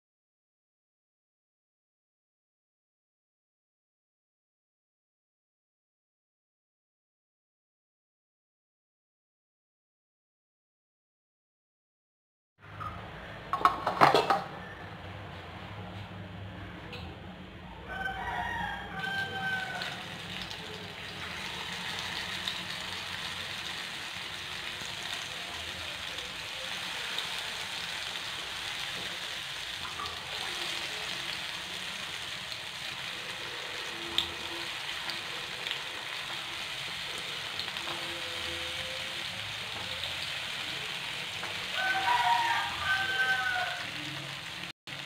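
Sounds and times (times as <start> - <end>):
rooster crowing: 17.7 - 22.9, 41.6 - 44.3
plantain slices sizzling in oil: 17.9 - 45.0.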